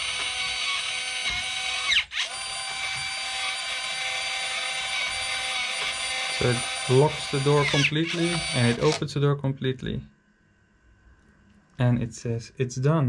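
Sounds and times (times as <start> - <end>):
electric motor whining: 0.0 - 9.0.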